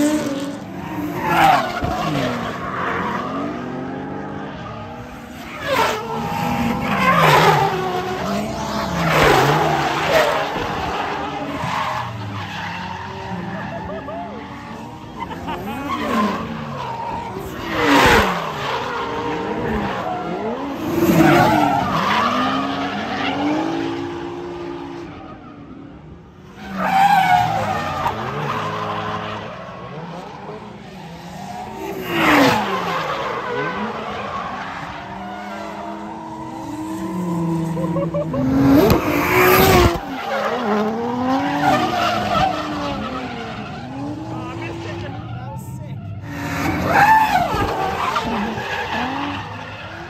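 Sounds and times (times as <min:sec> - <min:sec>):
tyres skidding: 0:00.0 - 0:50.0
car engine revving hard: 0:27.4 - 0:45.3, 0:46.2 - 0:50.0.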